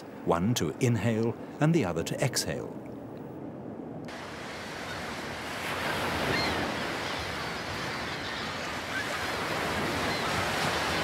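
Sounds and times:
surf washing over rocks: 4.1 - 11.0.

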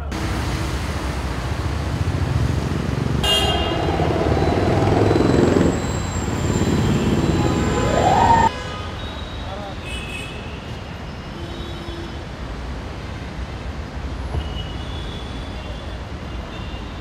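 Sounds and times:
rumble of passing vehicles: 0.0 - 9.8
vehicle engine revving: 1.0 - 8.5
car horns honking: 3.2 - 9.0.

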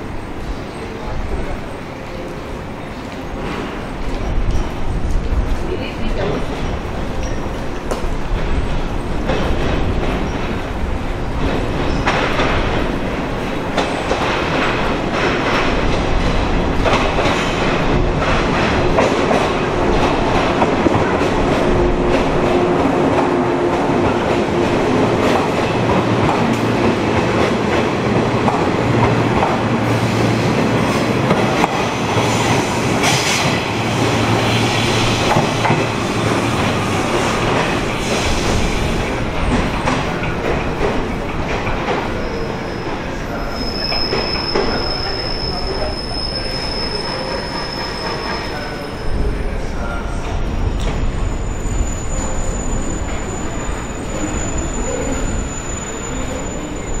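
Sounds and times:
train wheels clattering over rails: 3.0 - 46.0.

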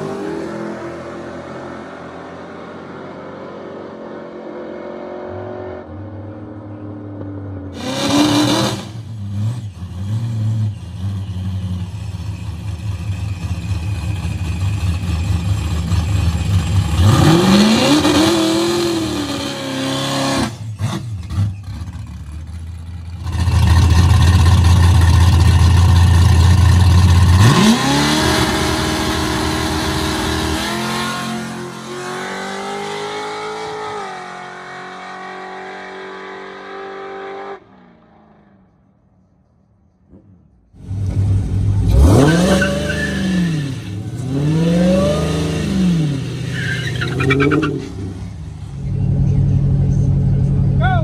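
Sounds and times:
drag racing engine rumble: 5.8 - 34.5, 37.6 - 51.0
engine revving: 7.7 - 11.9, 14.8 - 38.5, 40.1 - 50.8.

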